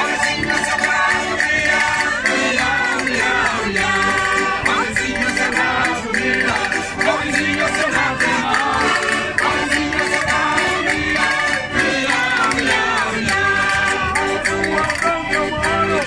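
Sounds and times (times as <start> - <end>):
accordion: 0.0 - 16.0
hand percussion: 0.0 - 16.0
small stringed instrument: 0.0 - 16.0
voices singing: 0.0 - 16.0.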